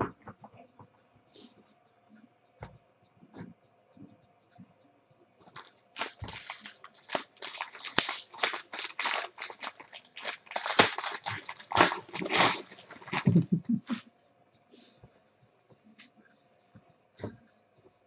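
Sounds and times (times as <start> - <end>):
plastic wrapper crinkling: 5.5 - 13.6.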